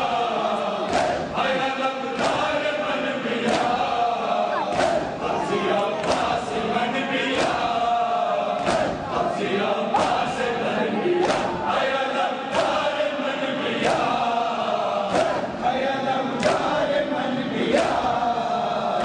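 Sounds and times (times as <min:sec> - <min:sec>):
crowd of men chanting: 0:00.0 - 0:19.0
hands beating chests in unison: 0:00.8 - 0:01.4, 0:02.1 - 0:02.7, 0:03.4 - 0:04.0, 0:04.6 - 0:05.3, 0:06.0 - 0:06.6, 0:07.3 - 0:07.9, 0:08.5 - 0:09.3, 0:09.9 - 0:10.5, 0:11.2 - 0:11.9, 0:12.5 - 0:13.0, 0:13.8 - 0:14.4, 0:15.0 - 0:15.6, 0:16.4 - 0:16.8.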